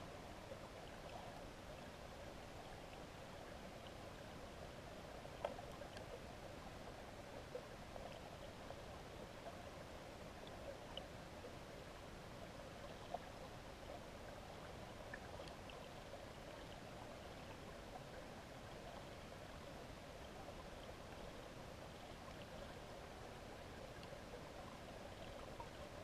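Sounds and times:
muffled underwater river rush: 0.0 - 26.0
small ticks: 5.4 - 6.2, 23.8 - 24.2.

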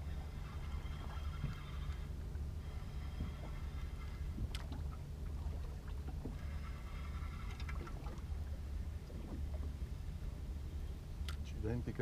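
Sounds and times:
fishing reel whirring: 0.0 - 4.7, 6.3 - 8.0
low steady rumble: 0.0 - 12.0.

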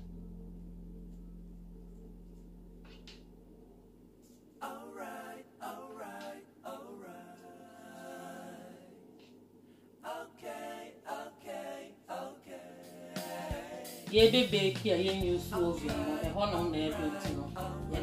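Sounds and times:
person singing unaccompanied: 10.0 - 18.0.

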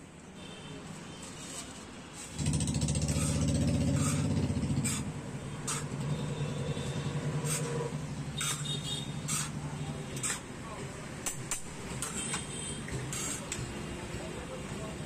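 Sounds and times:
steel spoons scraping tray: 3.0 - 6.0, 7.4 - 7.8, 8.4 - 9.6, 13.0 - 13.6.

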